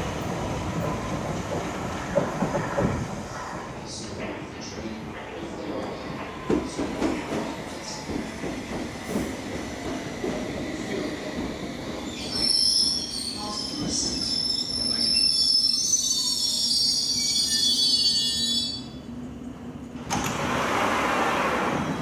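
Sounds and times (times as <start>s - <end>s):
train wheels squealing: 12.0s - 19.0s.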